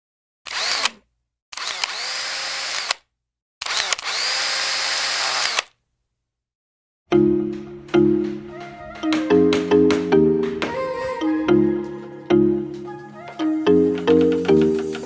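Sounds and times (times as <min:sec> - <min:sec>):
electric power drill whining: 0:00.5 - 0:03.0, 0:03.6 - 0:05.7.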